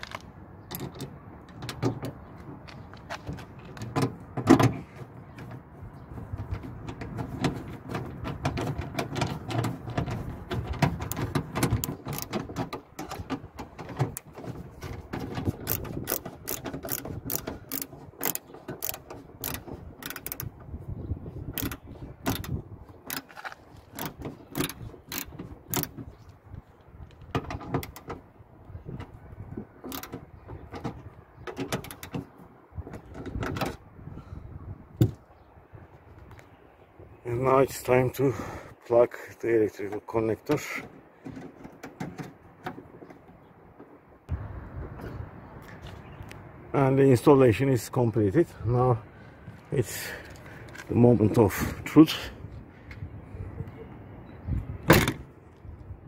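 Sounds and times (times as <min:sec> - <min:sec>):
socket driver ratchet clicks: 0:15.7 - 0:20.5, 0:21.6 - 0:23.3.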